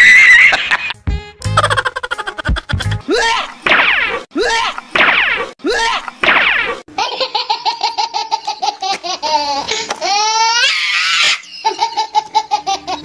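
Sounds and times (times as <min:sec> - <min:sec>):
high-pitched laughter: 0:00.1 - 0:01.0, 0:01.6 - 0:03.6, 0:06.9 - 0:13.0.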